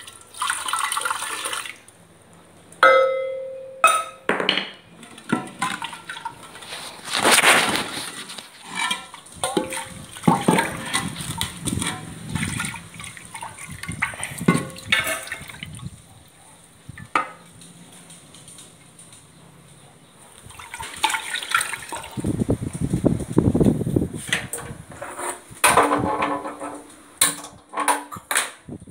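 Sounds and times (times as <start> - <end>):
wet sloshing and squelching: 0.0 - 2.0, 5.1 - 16.0, 20.3 - 22.8.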